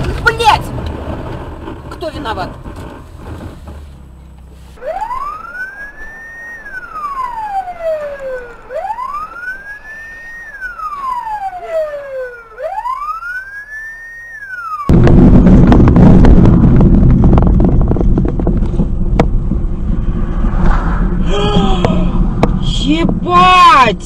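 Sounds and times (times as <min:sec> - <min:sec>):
ambulance siren wailing: 0:04.8 - 0:14.9.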